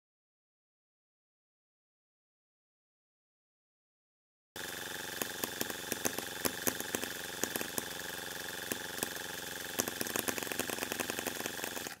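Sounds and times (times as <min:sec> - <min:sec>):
electric starter whine: 0:04.6 - 0:12.0
engine sharp pops: 0:04.9 - 0:12.0.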